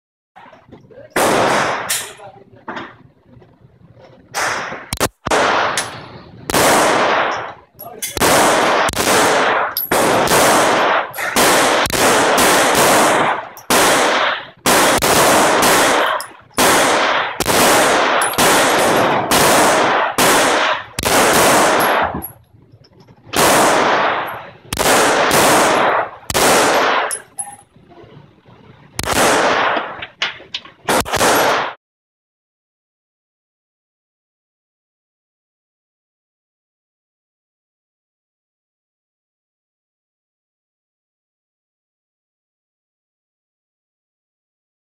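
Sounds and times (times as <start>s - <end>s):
pistol shots echoing: 1.2s - 2.2s, 4.4s - 22.4s, 23.3s - 27.5s, 29.0s - 31.8s.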